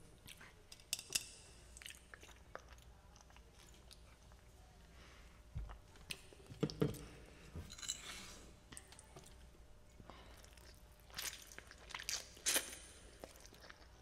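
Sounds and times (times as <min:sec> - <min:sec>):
wet chewing and lip smacks: 0:10.3 - 0:14.0.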